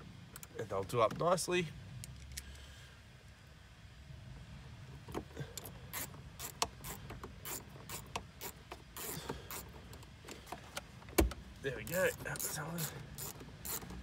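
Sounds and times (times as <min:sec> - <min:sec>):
hand screwdriver clicking: 0:12.1 - 0:14.0.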